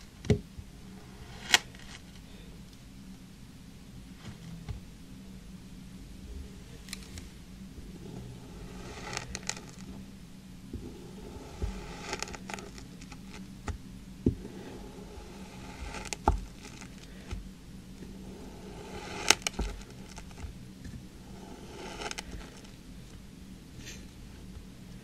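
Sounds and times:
knife scraping through sand: 8.0 - 9.9, 10.8 - 13.4, 14.5 - 17.2, 18.2 - 20.4, 21.2 - 22.7.

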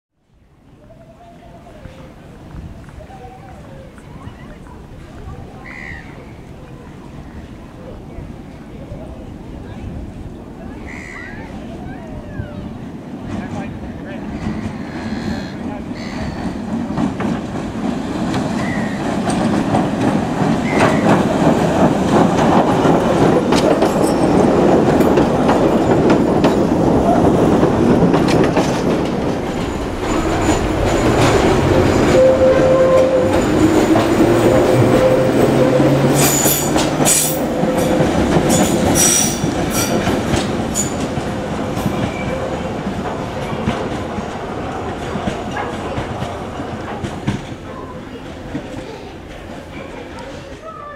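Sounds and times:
train wheels rumbling on track: 0.7 - 50.9
high-pitched wheel squeal: 32.0 - 37.3.

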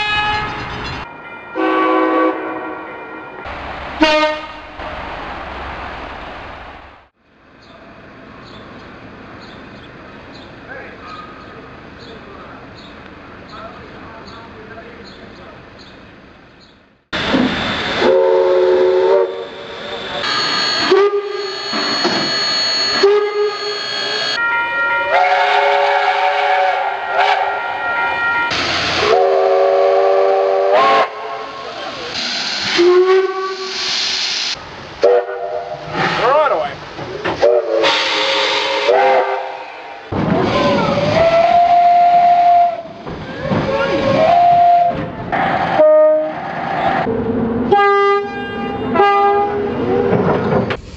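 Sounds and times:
steam locomotive whistle blasts: 4.0 - 4.8, 17.3 - 34.2, 35.0 - 35.8, 37.4 - 40.0, 40.6 - 43.0, 44.0 - 46.4
steam hissing: 17.2 - 24.4, 28.6 - 34.7, 35.7 - 42.2.

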